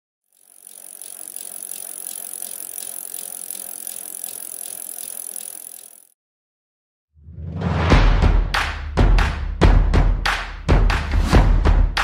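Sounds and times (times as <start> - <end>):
bicycle freewheel ticking: 0.2 - 6.2.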